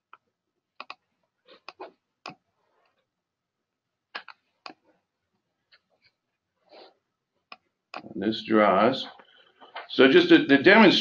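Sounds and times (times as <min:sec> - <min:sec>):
computer mouse clicks: 0:00.8 - 0:01.0.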